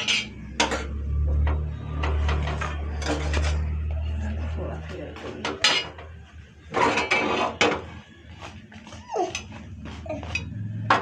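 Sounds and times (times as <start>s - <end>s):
steel spoon scraping a griddle: 0.0s - 1.0s, 1.8s - 3.8s, 6.7s - 8.0s.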